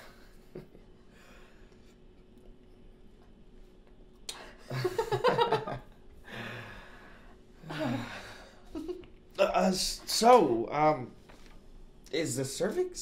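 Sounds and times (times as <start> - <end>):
man and woman laughing: 4.6 - 5.9, 7.6 - 9.1.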